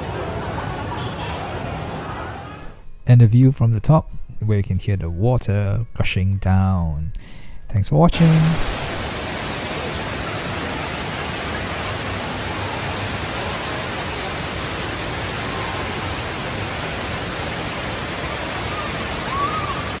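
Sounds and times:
indoor waterfall rushing: 8.1s - 20.0s.

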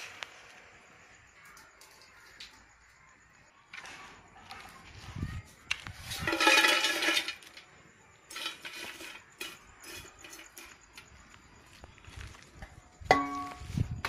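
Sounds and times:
dried fish clattering on metal: 5.9s - 7.7s, 8.3s - 11.2s.

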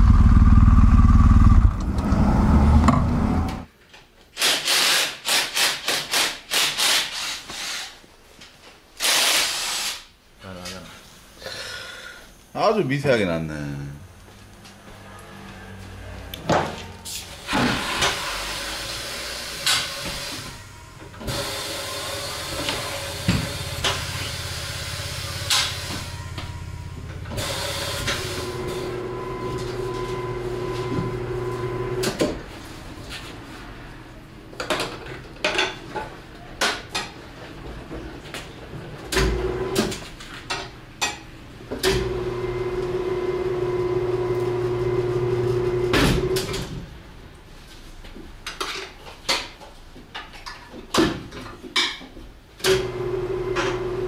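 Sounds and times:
machine humming: 0.0s - 3.7s, 18.8s - 32.1s.

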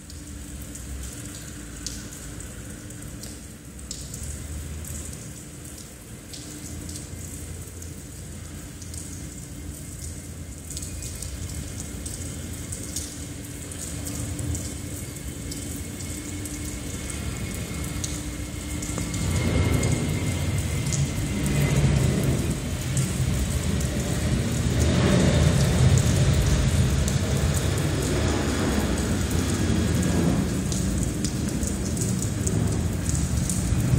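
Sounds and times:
low steady hum: 0.0s - 33.9s
muffled jet engines rumbling: 12.4s - 33.9s.

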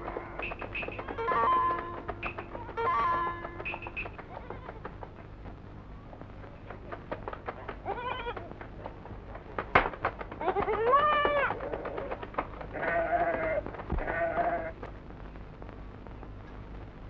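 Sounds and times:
goats and sheep bleating: 0.1s - 4.9s, 7.8s - 8.5s, 10.4s - 11.6s, 12.7s - 14.9s.

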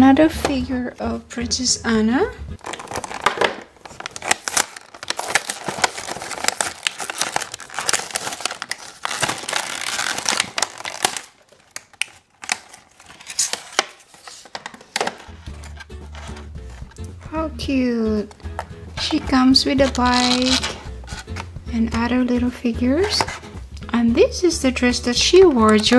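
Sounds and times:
plastic packaging crackling: 2.6s - 17.0s, 19.8s - 21.5s.

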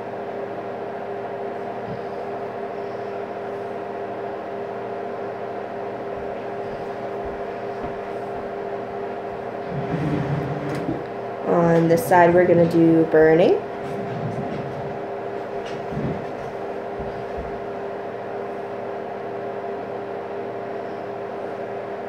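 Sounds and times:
machine hum with tones: 0.0s - 22.0s
faint low bumps: 9.4s - 17.6s.

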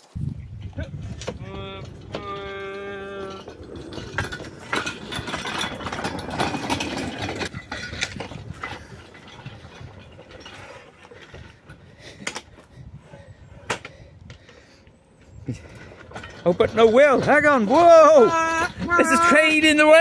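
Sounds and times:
rail wagon rattling on track: 0.9s - 10.9s, 15.8s - 20.0s.

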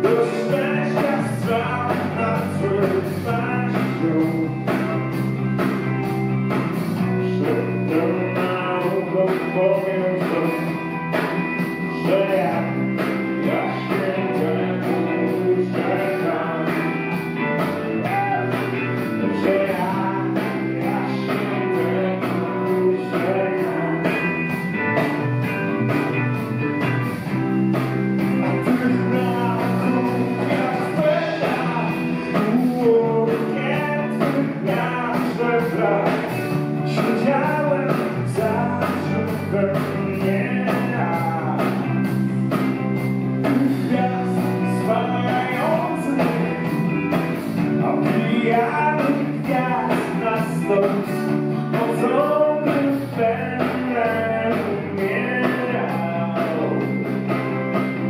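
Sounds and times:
man singing into microphone: 0.0s - 5.2s, 7.1s - 10.8s, 12.0s - 12.8s, 13.4s - 17.1s, 18.0s - 18.6s, 19.2s - 24.3s, 28.4s - 42.1s, 43.4s - 46.9s, 47.8s - 57.0s
bass guitar: 0.0s - 58.0s
drum kit with hi-hat beat: 0.0s - 58.0s
electric guitar: 0.0s - 58.0s.

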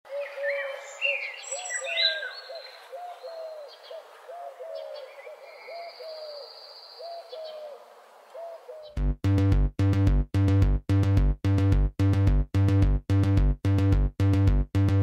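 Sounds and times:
bird hooting: 0.1s - 9.0s
birds chirping and warbling: 0.1s - 9.0s.

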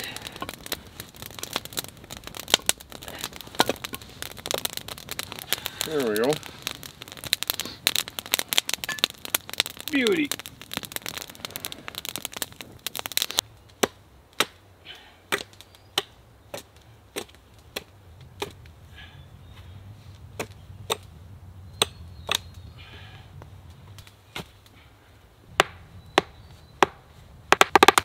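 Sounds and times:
campfire crackling: 0.0s - 28.0s
hatchet chopping wood: 13.8s - 14.6s, 15.3s - 18.6s, 25.6s - 28.0s.

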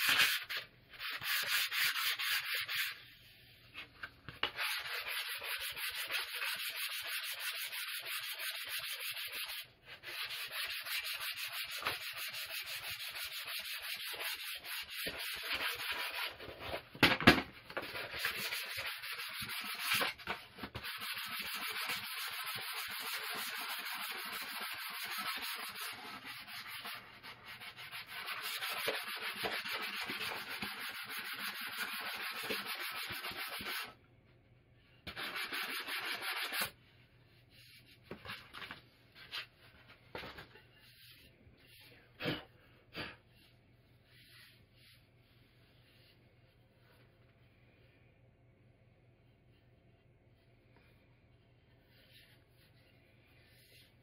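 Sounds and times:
sandpaper scratching on wood: 4.6s - 16.4s, 20.8s - 33.9s, 35.1s - 36.7s.

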